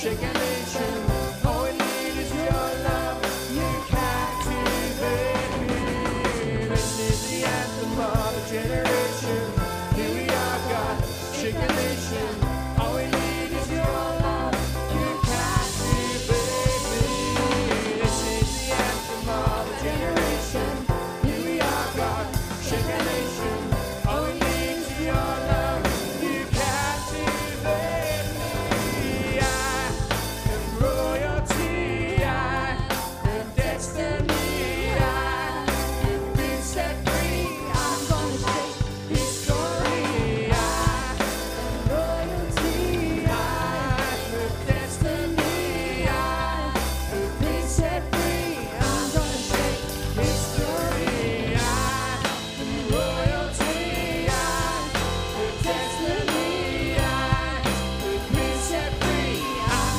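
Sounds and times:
band music with singing: 0.0s - 59.9s
drum kit beat: 0.0s - 59.9s.

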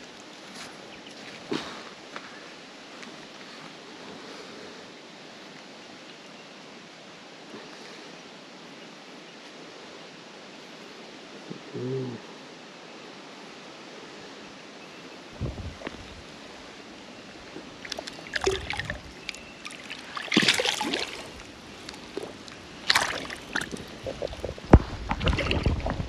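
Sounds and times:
water splashing and sloshing: 17.3s - 26.0s.

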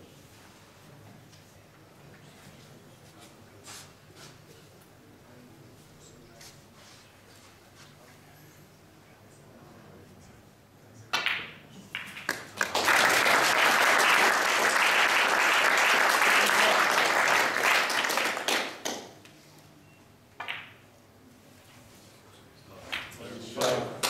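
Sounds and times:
audience applauding: 12.3s - 19.1s
snooker balls clicking: 20.3s - 20.9s.

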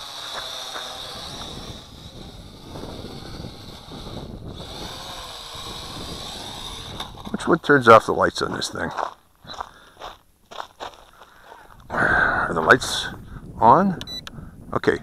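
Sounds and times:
toy drone propellers buzzing: 0.0s - 8.2s
wind rumbling on microphone: 0.0s - 8.6s, 11.6s - 15.0s.

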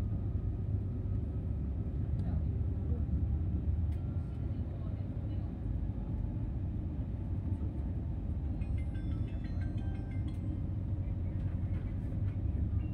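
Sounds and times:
train rumble inside carriage: 0.0s - 12.9s.

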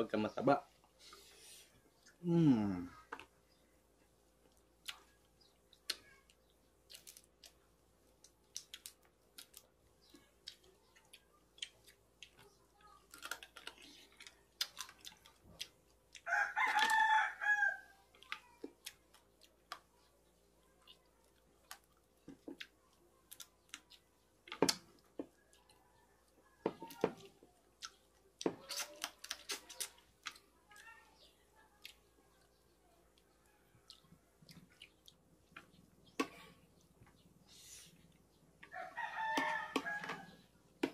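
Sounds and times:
people eating by hand: 0.0s - 40.9s
rooster crowing: 16.3s - 18.0s, 38.7s - 40.4s.

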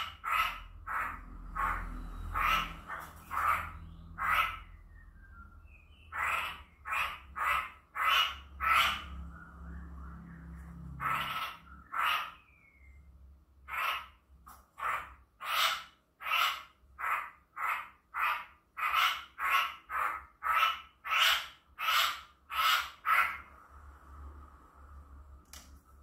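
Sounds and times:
bird giving harsh calls: 0.0s - 5.0s, 5.9s - 9.8s, 10.9s - 12.9s, 13.7s - 14.2s, 14.8s - 23.5s.

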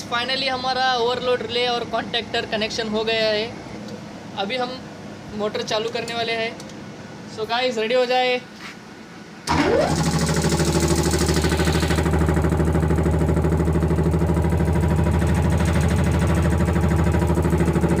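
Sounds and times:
air compressor running: 9.5s - 18.0s.

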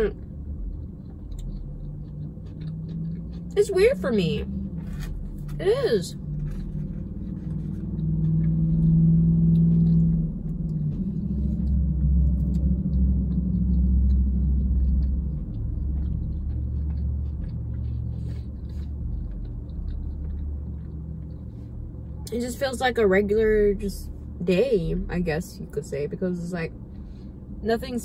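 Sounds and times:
vehicle engine rumbling: 0.0s - 28.0s
chewing clicks: 0.1s - 3.6s, 6.2s - 22.3s.

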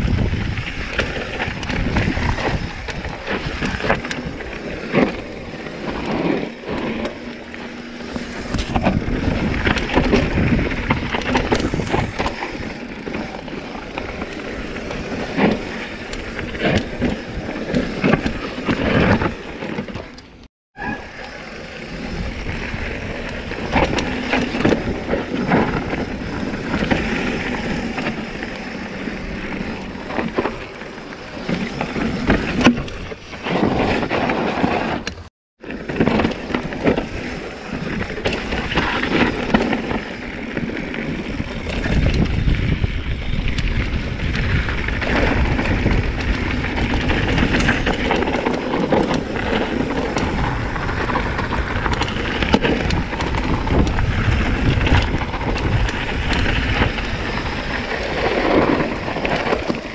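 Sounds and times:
wind buffeting microphone: 0.0s - 7.1s, 7.8s - 20.2s, 36.2s - 59.9s
bike frame rattling: 0.0s - 59.9s
tyres crunching over rocks: 22.0s - 59.9s.

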